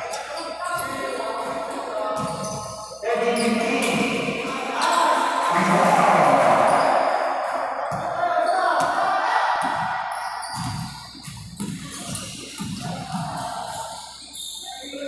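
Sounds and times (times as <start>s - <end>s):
players' voices: 0.0s - 10.9s, 11.6s - 15.0s
basketball bouncing on court: 2.2s - 2.8s, 7.8s - 8.2s, 9.6s - 14.0s.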